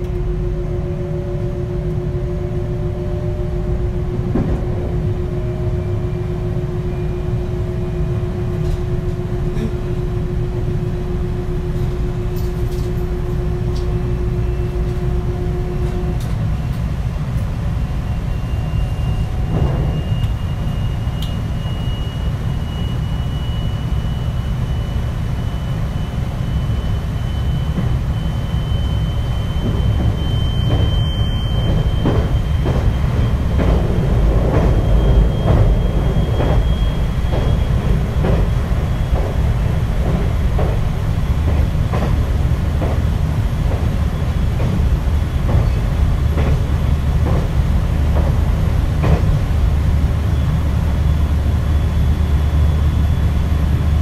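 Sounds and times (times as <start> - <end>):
low inverter tone: 0.0 - 16.7
electric train motors whining: 0.0 - 54.0
wheels rumbling on rail: 0.0 - 54.0.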